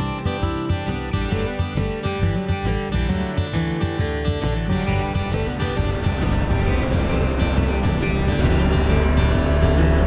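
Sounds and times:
strummed guitar music: 0:00.0 - 0:10.0
tractor diesel engine running: 0:04.4 - 0:10.0.

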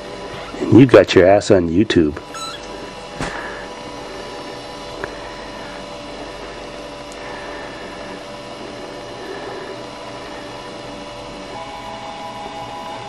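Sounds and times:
steady hum and hiss: 0:00.0 - 0:13.0.

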